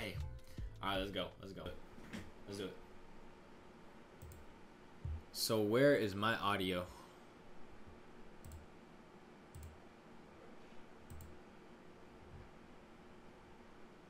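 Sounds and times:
computer mouse clicks: 4.2 - 4.5, 8.4 - 8.7, 9.5 - 9.8, 11.1 - 11.4.

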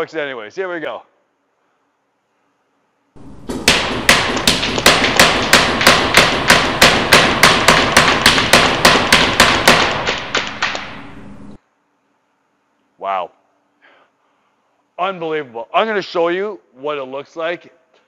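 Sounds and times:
paintball marker shots echoing: 3.4 - 11.6.

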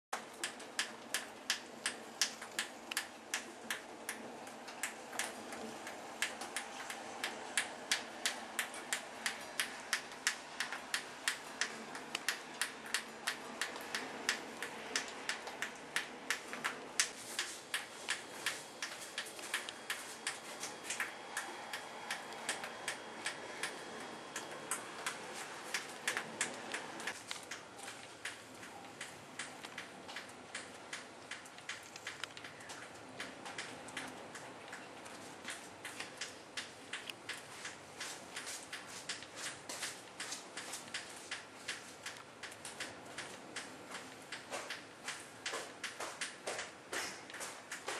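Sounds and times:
sharp ticks: 0.4 - 39.3.

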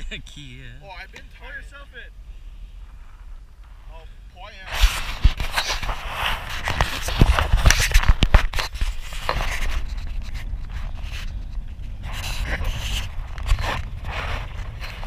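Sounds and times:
wind rumble on microphone: 0.9 - 15.0.

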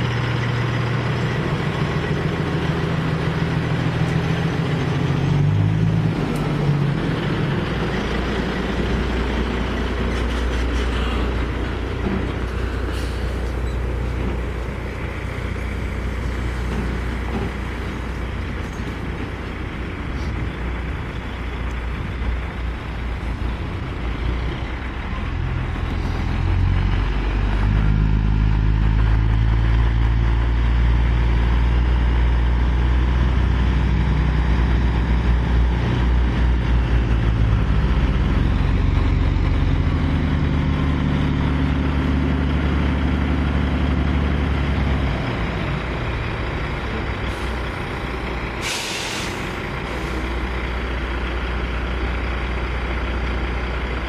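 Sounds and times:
heavy diesel truck engine: 0.0 - 54.0
air brakes hissing: 12.7 - 13.9, 48.5 - 50.4.

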